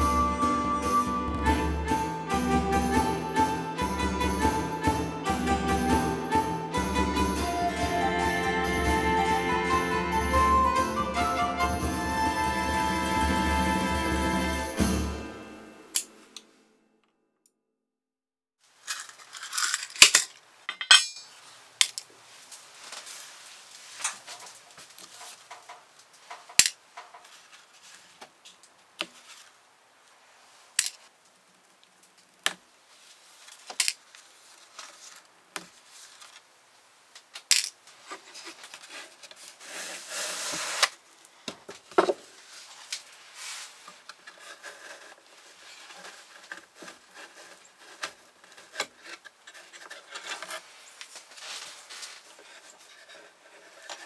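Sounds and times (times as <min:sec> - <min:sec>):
rubbing sound: 0:38.0 - 0:41.0, 0:42.4 - 0:54.0.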